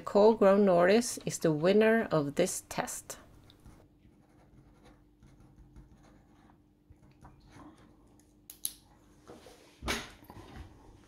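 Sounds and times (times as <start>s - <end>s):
pen scratching on paper: 3.6s - 6.6s.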